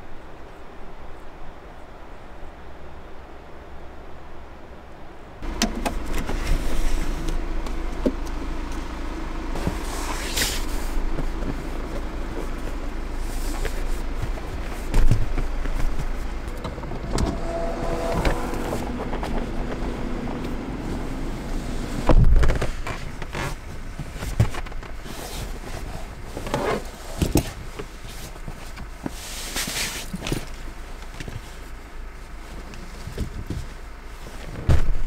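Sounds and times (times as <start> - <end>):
car low rumble: 0.0 - 35.0.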